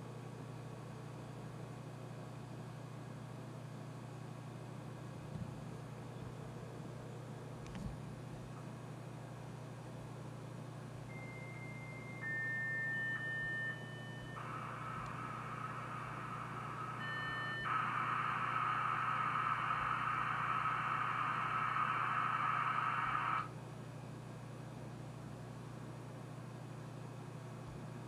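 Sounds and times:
low steady hum: 4.8s - 26.0s
modem beeping tones: 11.1s - 23.5s
hissing scrambled data noise: 14.4s - 23.5s.

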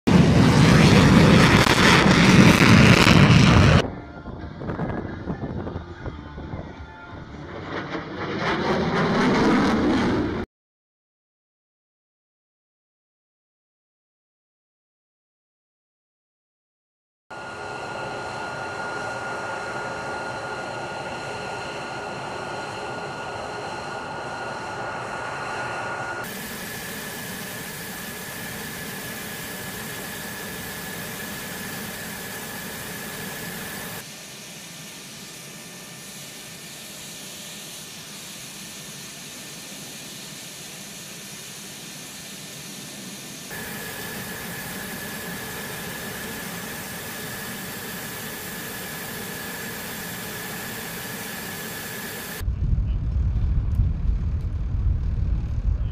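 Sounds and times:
jet engine whine: 0.1s - 10.5s, 17.3s - 55.9s
rushing noise: 43.5s - 55.8s.

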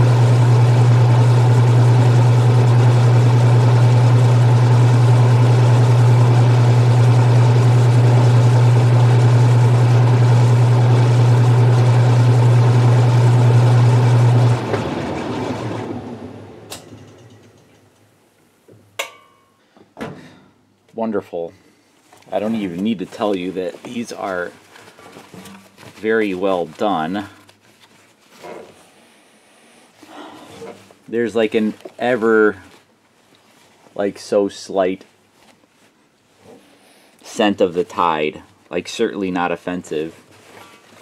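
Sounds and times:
washing machine humming: 0.0s - 18.0s.

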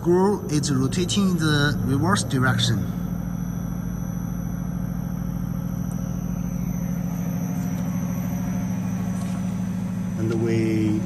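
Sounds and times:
electric motor and gearbox humming: 0.0s - 11.0s.

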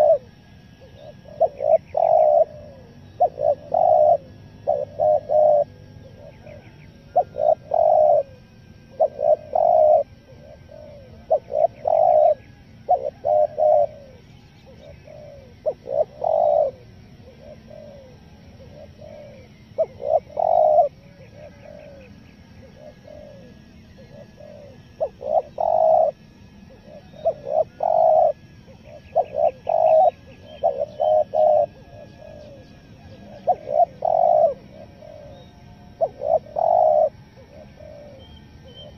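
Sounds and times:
dove cooing: 0.0s - 38.9s
small birds chirping: 0.0s - 38.9s.

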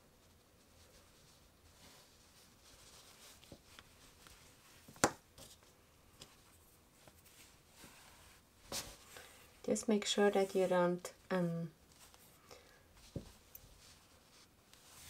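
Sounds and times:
yarn rustling: 0.0s - 11.0s, 11.8s - 15.0s.

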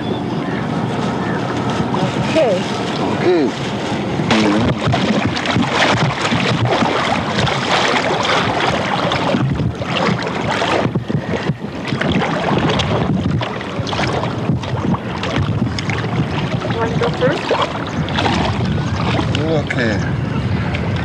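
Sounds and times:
people wading through water: 0.0s - 21.0s
river water: 0.0s - 21.0s
wind on microphone: 0.0s - 21.0s.

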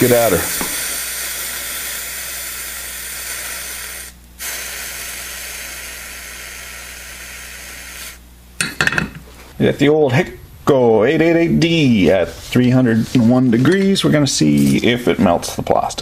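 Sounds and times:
low steady hum: 0.0s - 16.0s
steady hiss: 0.0s - 16.0s.

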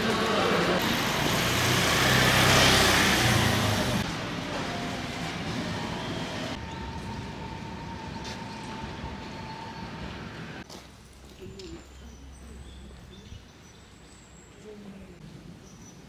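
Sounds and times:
motor vehicle passing close: 0.0s - 4.2s
outdoor background noise: 0.0s - 16.0s.

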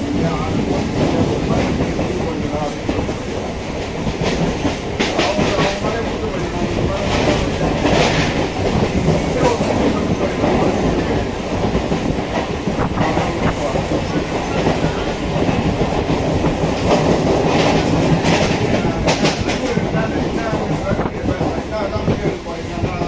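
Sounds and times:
train running noise: 0.0s - 23.0s.

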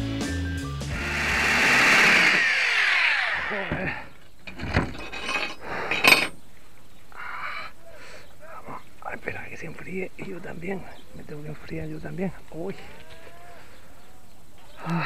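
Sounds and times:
background music: 0.0s - 2.2s
metal drill bits clinking on tiles: 4.5s - 6.4s.

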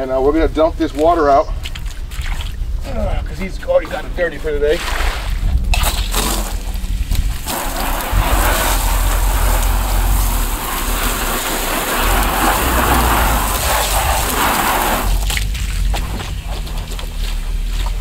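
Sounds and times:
hose spraying water into tub: 4.7s - 18.0s.

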